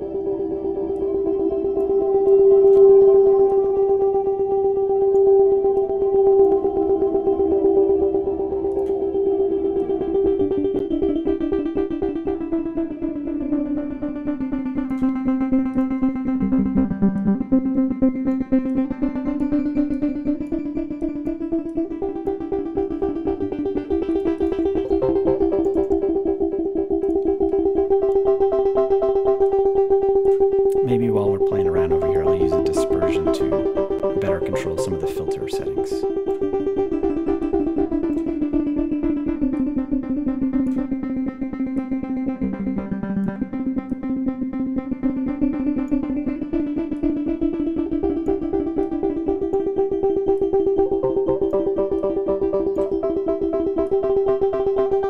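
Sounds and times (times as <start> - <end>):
plucky synthesizer notes pulsing: 15.7 - 47.4
low synthesizer note: 30.7 - 36.6.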